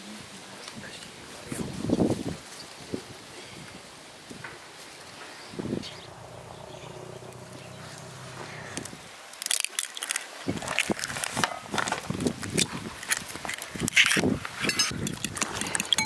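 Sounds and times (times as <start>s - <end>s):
faint low hum: 5.6s - 9.1s
eggshell cracking: 9.3s - 11.2s.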